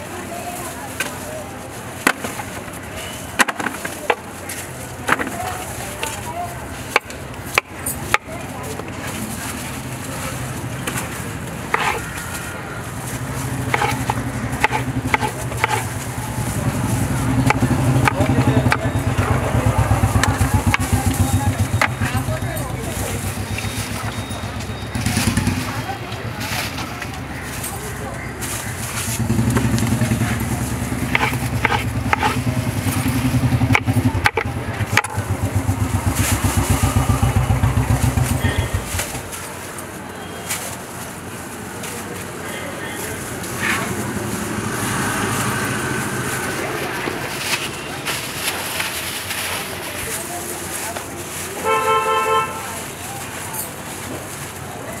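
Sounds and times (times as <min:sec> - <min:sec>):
motorcycle engine idling: 0:13.0 - 0:39.6.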